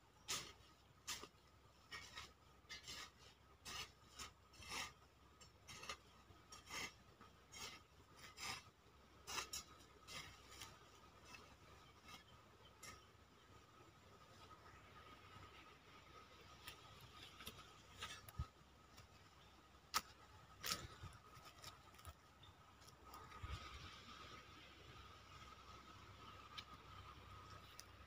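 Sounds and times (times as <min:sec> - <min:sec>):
hand hoe chopping dry soil: 0:00.2 - 0:13.1, 0:16.6 - 0:19.2, 0:19.9 - 0:22.1.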